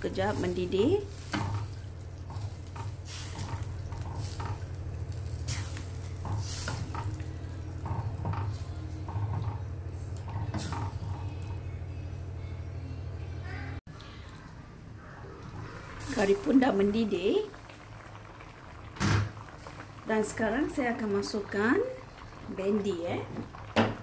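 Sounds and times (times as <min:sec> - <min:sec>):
pot simmering: 0:00.0 - 0:12.8, 0:13.9 - 0:24.0
steady low hum: 0:00.0 - 0:15.9.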